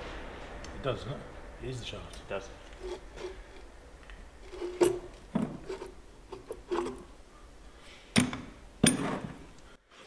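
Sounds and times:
steel parts knocking and clinking: 8.1 - 9.6.

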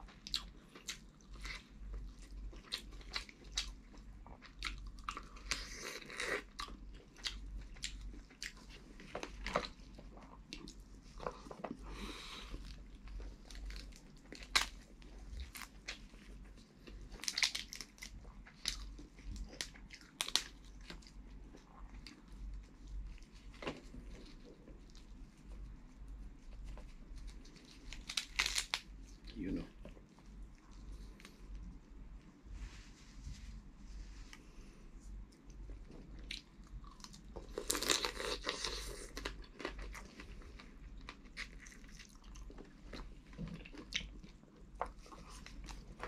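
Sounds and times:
chewing and wet mouth sounds: 0.0 - 32.4, 35.0 - 46.0
crab shell cracking: 27.9 - 28.9.

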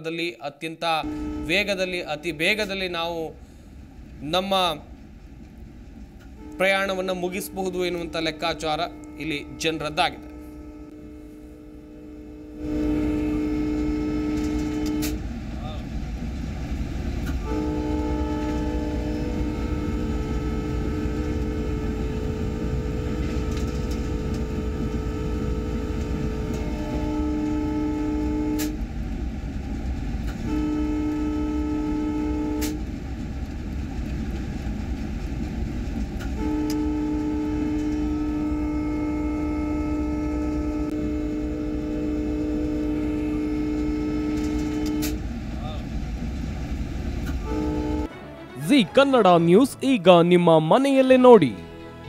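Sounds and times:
train rumbling on track: 0.0 - 52.0
train horn blasts: 0.9 - 3.8, 6.2 - 15.9, 17.2 - 28.9, 30.2 - 33.0, 36.2 - 45.8, 47.2 - 49.8.

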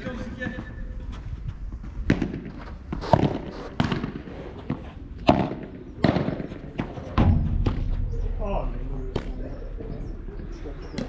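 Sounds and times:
ball struck by rackets: 2.0 - 8.0.

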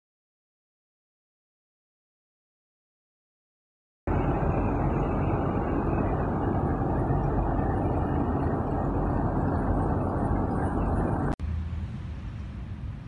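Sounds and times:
trucks driving past: 4.1 - 13.0.

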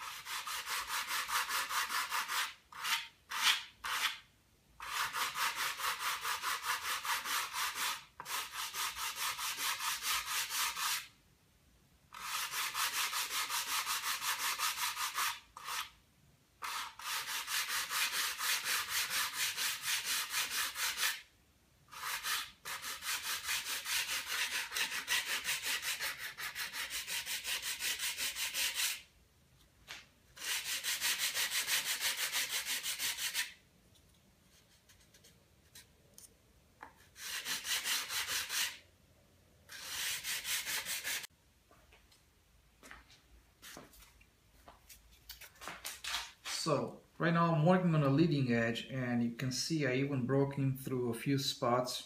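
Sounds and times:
sandpaper rubbing: 0.0 - 4.2, 4.8 - 11.1, 12.2 - 15.9, 16.6 - 21.3, 21.9 - 29.1, 30.4 - 33.6, 37.0 - 38.8, 39.7 - 41.3.

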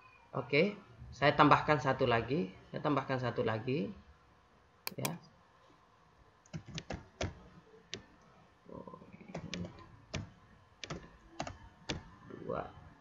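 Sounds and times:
computer keyboard key clicks: 4.9 - 5.2, 6.5 - 7.4, 9.4 - 12.0.

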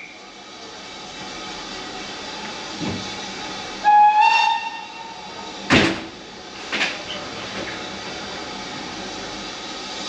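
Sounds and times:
steam locomotive whistle: 3.8 - 5.2.

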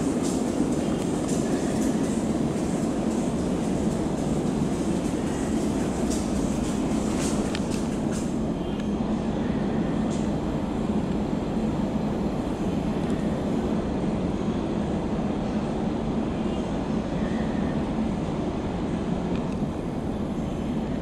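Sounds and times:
train rumbling through station: 0.0 - 21.0.

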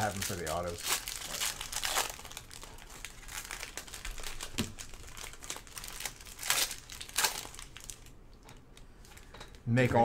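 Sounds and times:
foil wrappers crinkling and tearing: 0.0 - 8.2.

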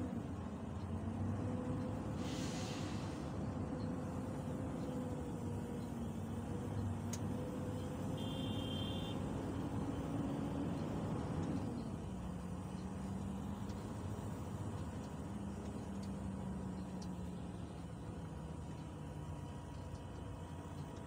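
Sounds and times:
heavy vehicle engine running: 0.0 - 21.0
hiss of rain and water: 2.1 - 3.4.

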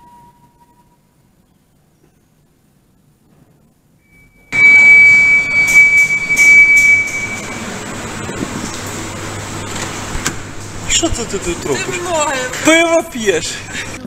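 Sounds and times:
steady high-pitched tone: 4.0 - 8.8
loud car wash noise: 4.6 - 14.0.

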